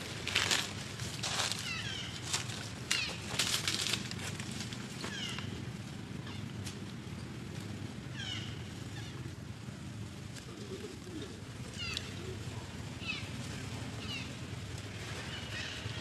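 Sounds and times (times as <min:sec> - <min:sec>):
dry leaves crackling: 0:00.0 - 0:16.0.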